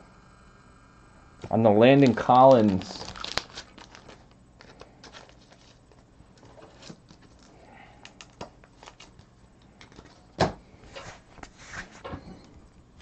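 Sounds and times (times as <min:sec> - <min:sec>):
cards clicking and rustling: 0:02.0 - 0:10.5.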